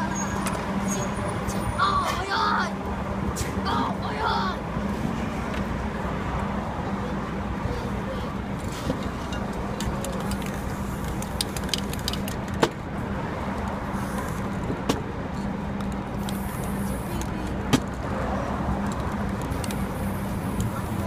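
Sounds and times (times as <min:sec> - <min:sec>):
street traffic: 0:00.0 - 0:21.0
spray paint cans hissing: 0:08.6 - 0:12.6, 0:14.0 - 0:14.6, 0:16.1 - 0:17.5, 0:18.8 - 0:21.0.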